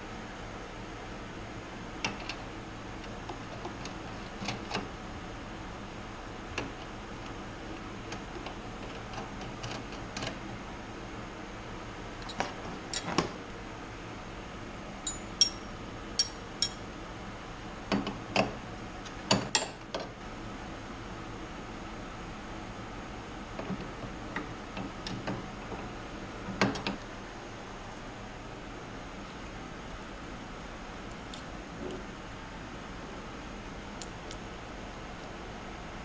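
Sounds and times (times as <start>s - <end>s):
steady low hum: 0.0s - 36.0s
metal fittings and tools clinking: 15.0s - 16.8s.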